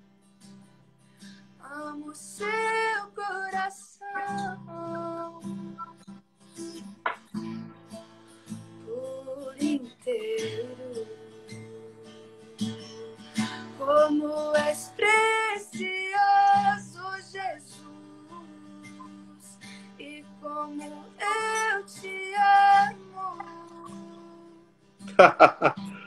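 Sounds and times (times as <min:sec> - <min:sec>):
strummed acoustic guitar: 0:00.0 - 0:26.0
woman singing: 0:01.6 - 0:05.8, 0:08.8 - 0:24.7.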